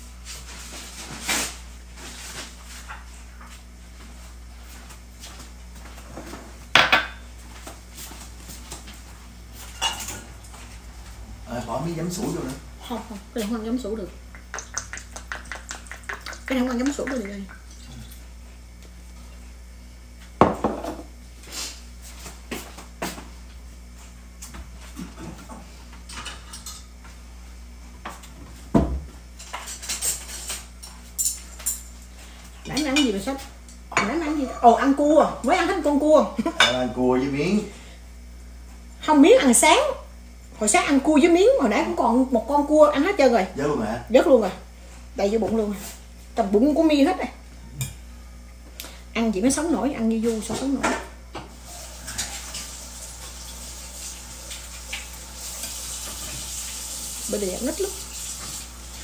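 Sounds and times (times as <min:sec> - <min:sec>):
plates and cutlery clinking: 0:06.2 - 0:07.2, 0:09.6 - 0:10.3, 0:50.4 - 0:52.7.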